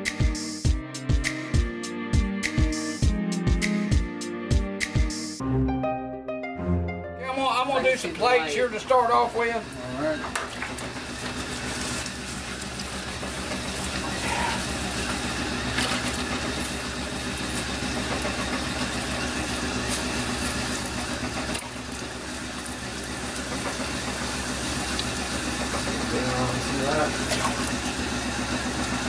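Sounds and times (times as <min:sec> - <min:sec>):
potter's wheel humming: 0:07.3 - 0:29.0.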